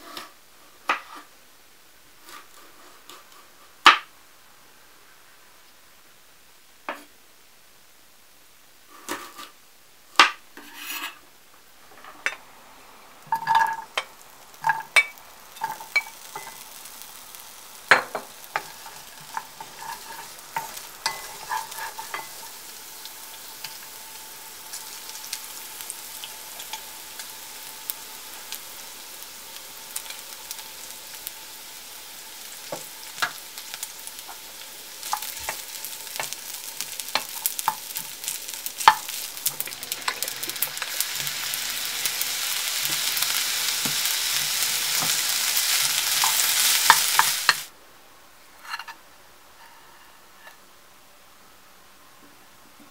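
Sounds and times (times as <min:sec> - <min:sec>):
wooden spatula scraping a pan: 0:00.0 - 0:01.3, 0:02.2 - 0:04.0, 0:08.9 - 0:09.6, 0:10.6 - 0:11.2, 0:17.9 - 0:22.8, 0:48.6 - 0:49.0, 0:49.6 - 0:50.6
food sizzling in a pan: 0:00.0 - 0:07.2, 0:08.7 - 0:47.8.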